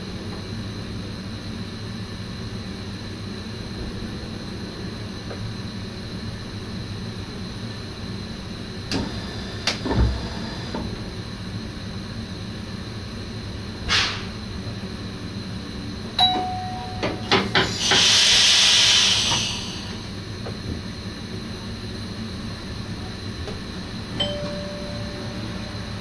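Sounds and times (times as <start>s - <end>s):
train running noise: 12.7s - 26.0s
compressed air hiss: 13.9s - 14.3s, 17.5s - 20.2s
short held tone: 16.2s - 17.8s, 24.2s - 26.0s.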